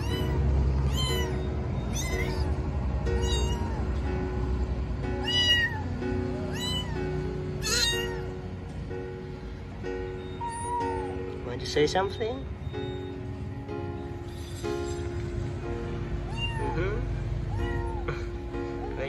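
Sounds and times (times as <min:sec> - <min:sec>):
kitten meowing loudly: 0:00.0 - 0:02.5, 0:03.2 - 0:03.8, 0:05.2 - 0:05.9, 0:06.5 - 0:07.0, 0:07.6 - 0:08.2, 0:16.3 - 0:16.8
soft background music: 0:00.0 - 0:19.0.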